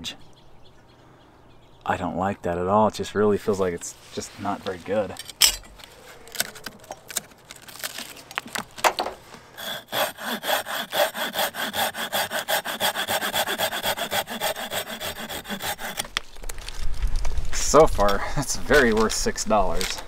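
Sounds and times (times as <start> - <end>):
pocket saw cutting branch: 9.6 - 16.2.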